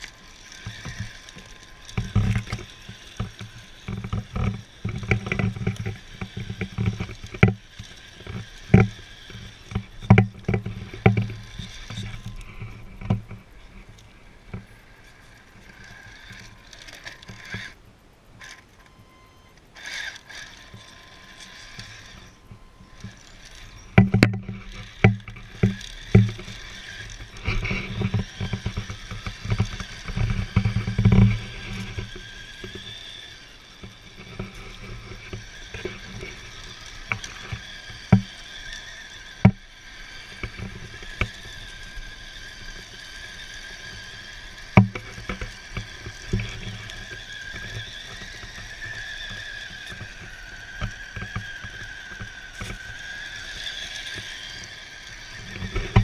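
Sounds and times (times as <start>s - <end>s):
electric motor and gears whining: 0.0s - 56.0s
thumps and knocks: 23.9s - 32.8s.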